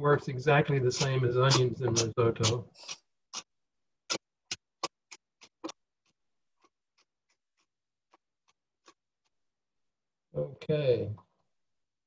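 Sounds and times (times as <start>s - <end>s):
knife chopping on plastic board: 1.0s - 2.6s.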